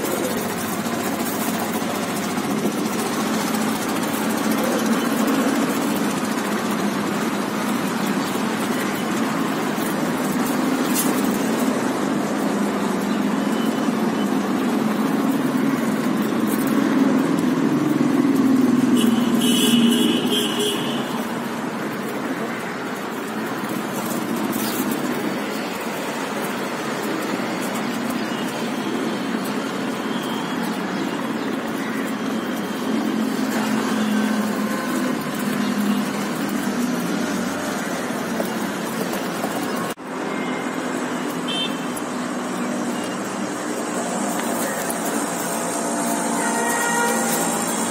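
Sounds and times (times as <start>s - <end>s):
city road traffic hum: 0.0s - 47.9s
high-pitched squeal: 44.1s - 47.9s.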